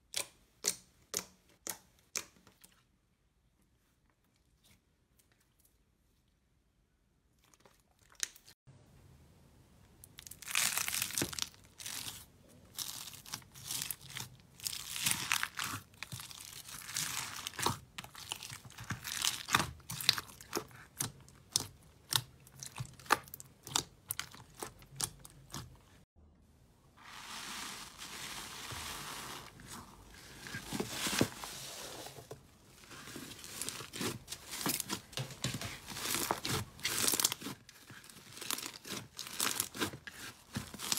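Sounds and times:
slime crackling and popping: 10.2 - 25.7.

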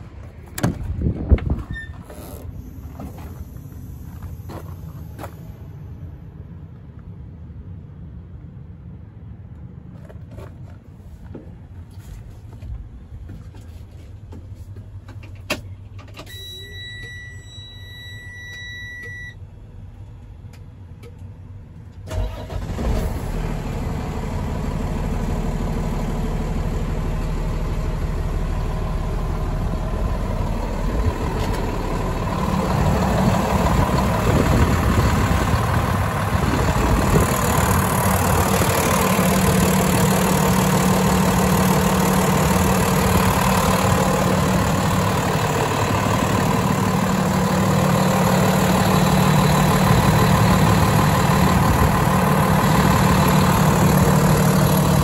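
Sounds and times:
dashboard warning tone: 16.3 - 19.4
diesel engine idling: 19.5 - 55.0.

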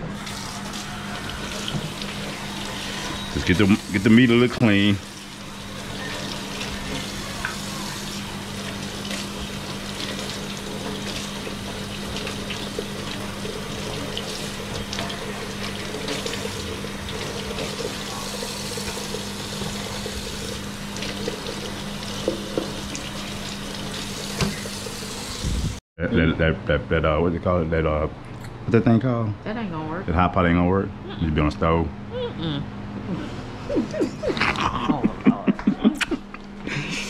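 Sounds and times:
faucet running into metal sink: 0.1 - 25.4.

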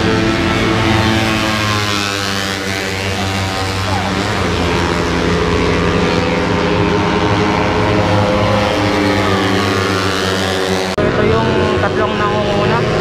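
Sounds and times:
racing motorcycle engines: 0.0 - 13.0.

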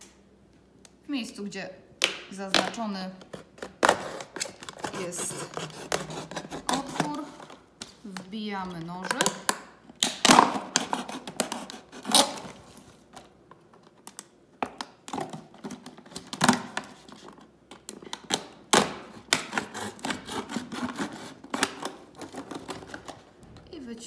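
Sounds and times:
knife cutting plastic bottle: 3.6 - 7.6, 9.0 - 12.6, 18.1 - 23.2
plastic snapping: 9.0 - 12.4.

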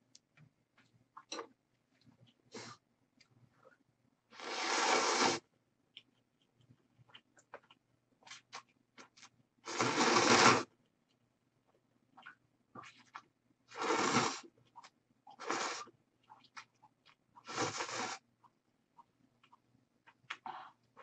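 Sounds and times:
soft chewing clicks: 0.0 - 3.9, 5.9 - 9.4, 10.8 - 13.3, 14.6 - 15.4, 16.2 - 17.5, 18.4 - 21.0.

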